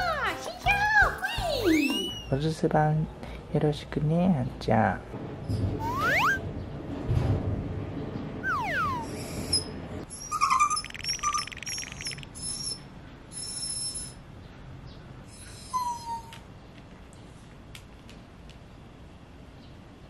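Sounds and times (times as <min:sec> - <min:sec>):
dog whining: 0:05.8 - 0:06.4, 0:08.4 - 0:11.6, 0:15.3 - 0:16.4.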